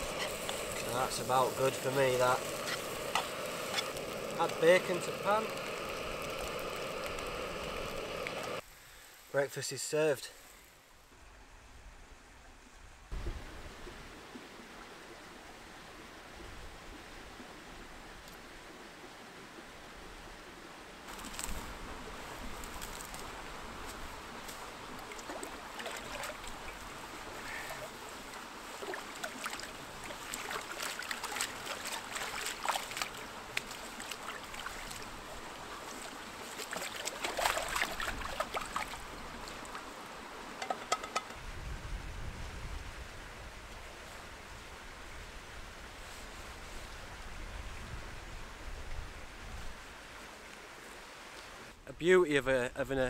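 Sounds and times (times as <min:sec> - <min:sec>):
stream running: 0:00.0 - 0:51.8
pan splashing in water: 0:36.5 - 0:39.0.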